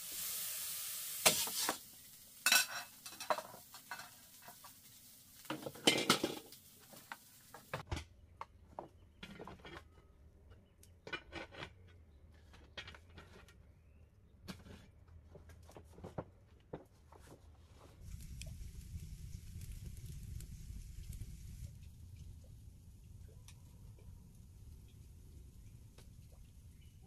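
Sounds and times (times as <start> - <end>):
dishes and utensils clinking: 2.4 - 4.7, 5.5 - 6.6.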